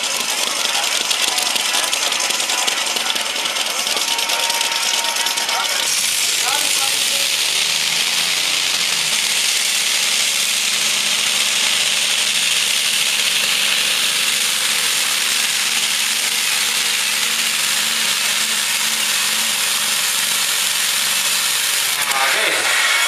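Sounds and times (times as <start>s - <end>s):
tractor engine running loud: 0.0s - 23.0s.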